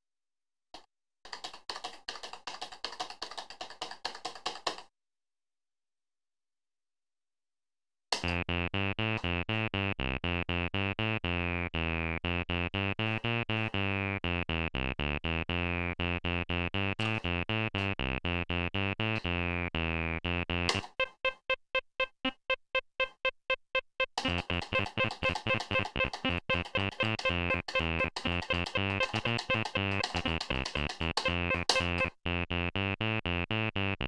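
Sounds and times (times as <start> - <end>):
acid synth bass pattern: 8.2 - 34.0.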